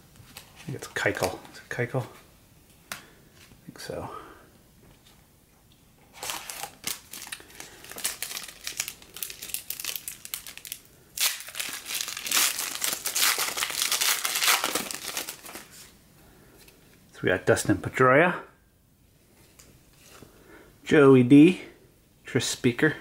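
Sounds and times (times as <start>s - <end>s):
foil pack tearing open: 6.1s - 15.7s
foil wrapper crinkling: 6.1s - 15.9s.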